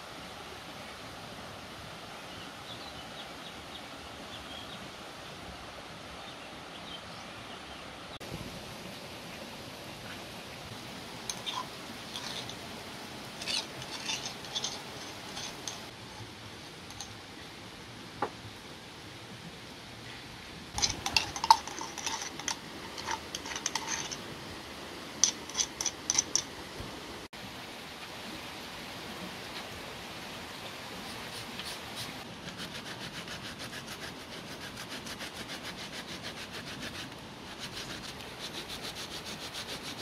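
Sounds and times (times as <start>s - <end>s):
background hiss: 0.0s - 40.0s
clay pots clinking: 11.2s - 12.6s, 13.4s - 15.9s, 20.8s - 24.2s, 25.2s - 26.5s.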